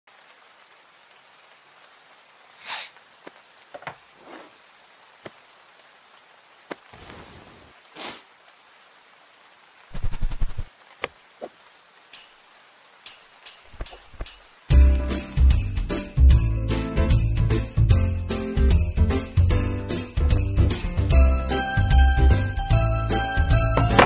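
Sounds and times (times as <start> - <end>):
faint rain hiss: 0.1 - 24.0
loud knocks: 23.8 - 24.0.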